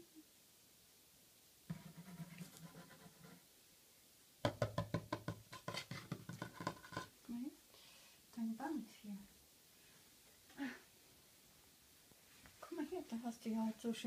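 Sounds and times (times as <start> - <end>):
fast sharp knocks: 4.4 - 7.1
fingers tapping on wooden table: 4.5 - 7.1.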